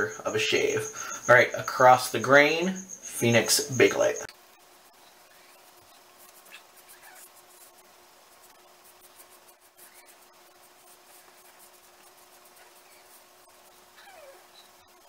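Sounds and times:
razor scratching stubble: 5.3s - 14.5s.

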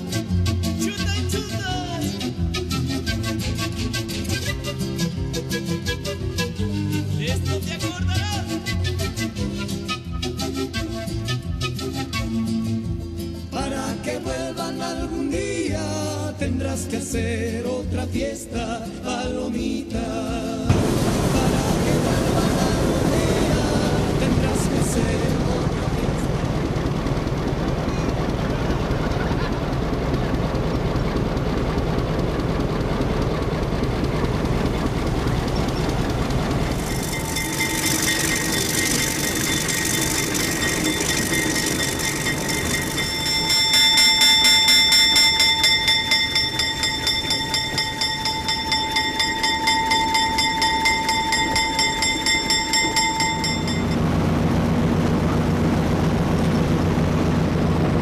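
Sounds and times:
low engine hum: 0.0s - 58.0s
train running rumble: 0.2s - 11.2s, 13.5s - 58.0s
high pulsing wheel squeal: 33.0s - 54.0s.

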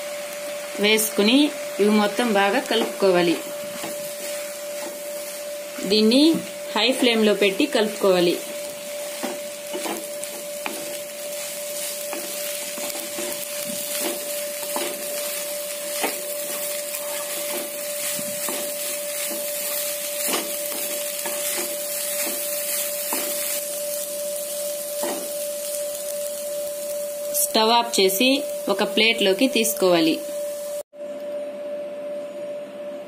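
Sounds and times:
rice sizzling in a pan: 0.0s - 30.9s
spatula knocking and scraping pan: 2.6s - 7.2s, 8.4s - 23.6s, 25.0s - 25.4s.

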